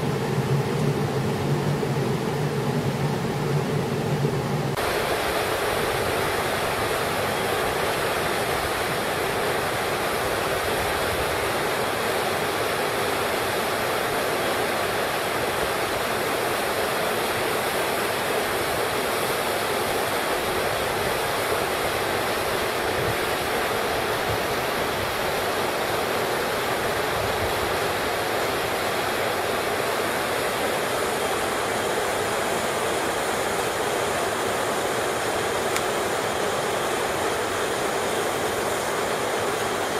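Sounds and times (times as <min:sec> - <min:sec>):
waterfall rushing over rocks: 0:04.7 - 0:39.9.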